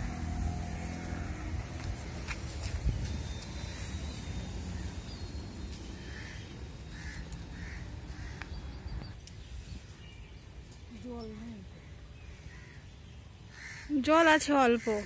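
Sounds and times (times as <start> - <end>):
crow cawing: 6.0 - 8.5, 12.3 - 12.9, 13.5 - 15.0.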